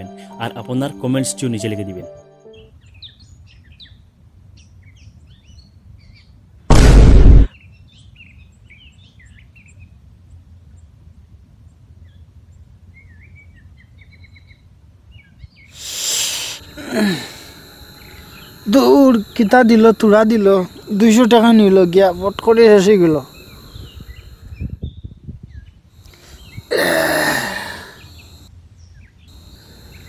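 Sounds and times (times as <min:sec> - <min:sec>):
loud burst of noise: 0:06.7 - 0:07.5
small birds chirping: 0:12.9 - 0:30.0
breathy blow of air: 0:15.8 - 0:18.4.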